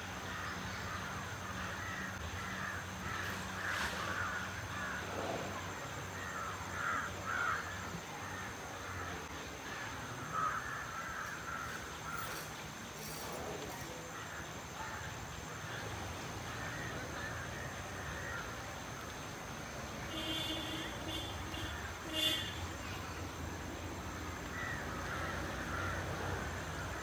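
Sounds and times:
bird calls: 0:20.1 - 0:27.0.

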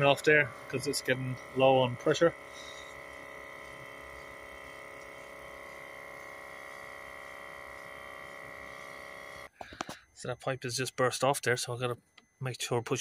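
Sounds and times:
air compressor motor humming: 0:00.0 - 0:10.2.

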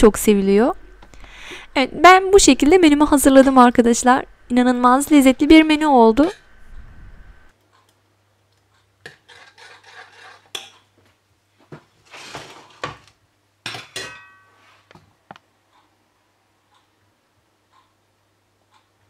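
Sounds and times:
metal ladle scraping saucepan: 0:09.1 - 0:10.8.

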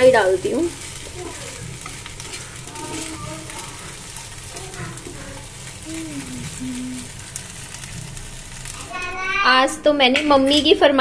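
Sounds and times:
faint frying: 0:00.0 - 0:11.0
faint voices: 0:01.0 - 0:07.2.

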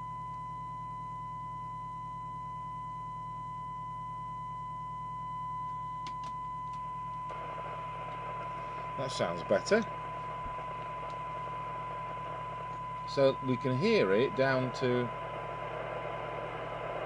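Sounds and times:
low hum: 0:00.0 - 0:17.0
steady test tone: 0:06.0 - 0:17.0.

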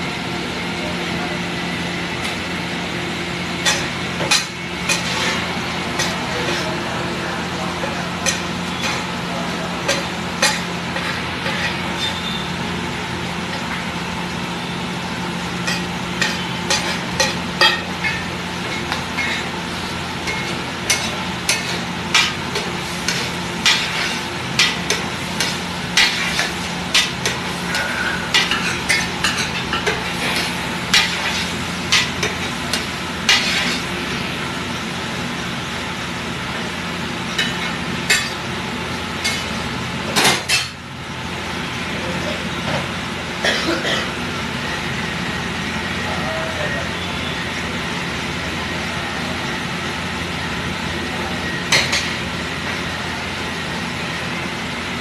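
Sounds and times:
metal spatula scraping a griddle: 0:03.6 - 0:06.9, 0:07.8 - 0:09.1, 0:09.8 - 0:12.4, 0:15.7 - 0:34.0
vegetables sizzling on a griddle: 0:03.6 - 0:12.6, 0:15.4 - 0:35.3.

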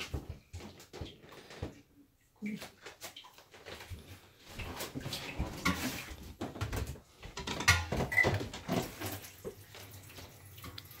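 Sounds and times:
pots knocking on steel counter: 0:06.5 - 0:09.0.

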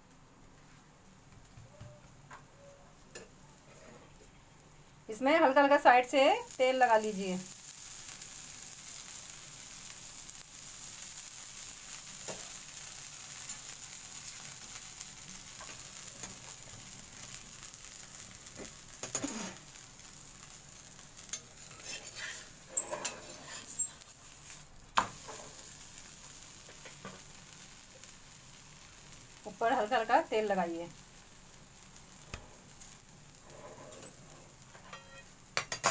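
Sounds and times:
oil sizzling on a hot pan: 0:00.0 - 0:35.9
metal spoon scraping a pan: 0:19.0 - 0:19.6, 0:21.3 - 0:24.0, 0:33.5 - 0:35.9.

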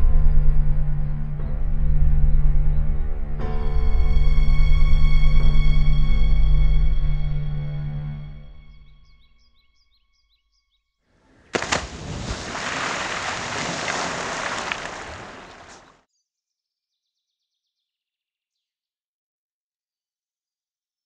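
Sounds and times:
person splashing into water: 0:11.4 - 0:15.9
water churning and spraying: 0:11.4 - 0:15.9.

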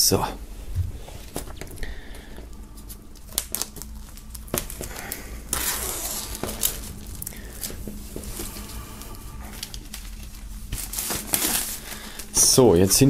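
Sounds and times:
plastic film crinkling: 0:01.2 - 0:13.0.

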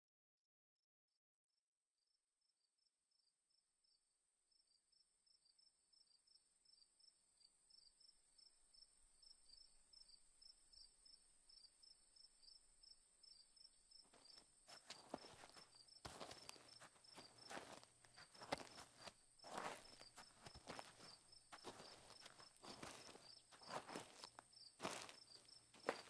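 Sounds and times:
crickets chirping: 0:05.4 - 0:26.0
high insect trill: 0:09.5 - 0:26.0
footsteps rustling through brush: 0:14.2 - 0:26.0.

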